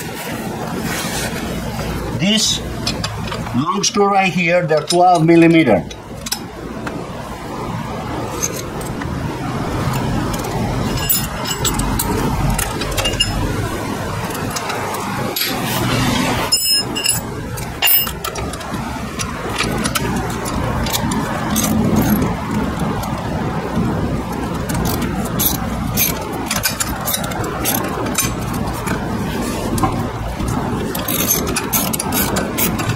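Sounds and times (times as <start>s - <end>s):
steady background rush: 0.0s - 32.9s.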